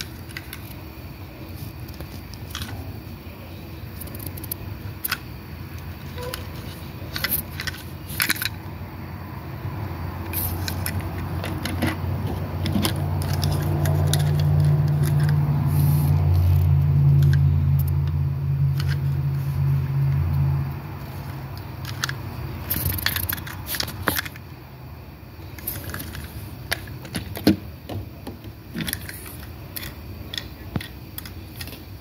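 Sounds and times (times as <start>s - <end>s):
steady low hum: 0.0s - 32.0s.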